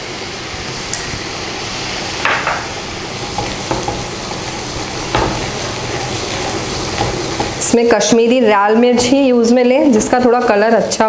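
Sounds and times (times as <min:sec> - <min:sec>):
butter sizzling in a frying pan: 0:00.0 - 0:10.6
spatula scraping pan: 0:02.8 - 0:08.3.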